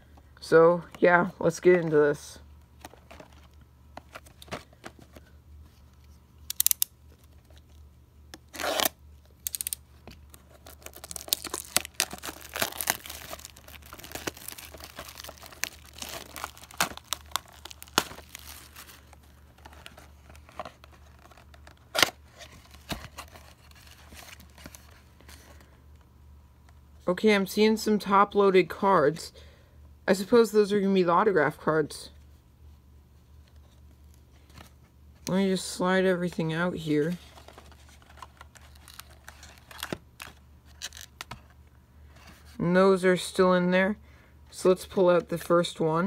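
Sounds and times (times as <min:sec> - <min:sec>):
plastic wrap crackling: 0:08.5 - 0:21.8
plastic wrap tearing: 0:10.4 - 0:22.2.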